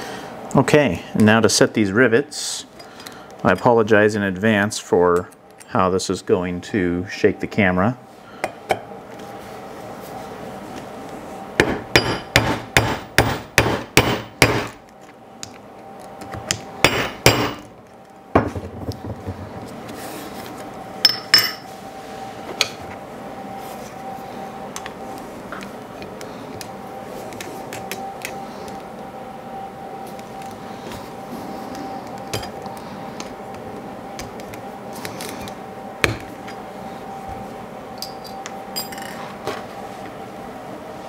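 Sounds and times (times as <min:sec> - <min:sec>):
hammer striking rivet tool: 0:11.6 - 0:14.8, 0:16.8 - 0:17.6.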